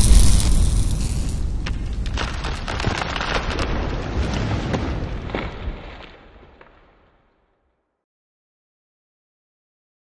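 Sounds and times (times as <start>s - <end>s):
low rumble: 0.0s - 2.8s
crackling sparks: 0.0s - 6.8s.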